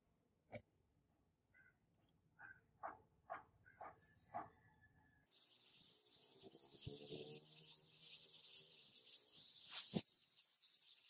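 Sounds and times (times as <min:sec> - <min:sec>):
aerosol spray can hissing: 0:05.3 - 0:11.0.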